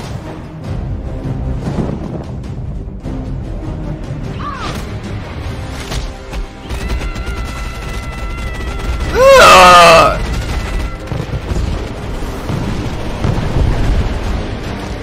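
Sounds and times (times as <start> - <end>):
character battle cry: 6.8 - 10.8.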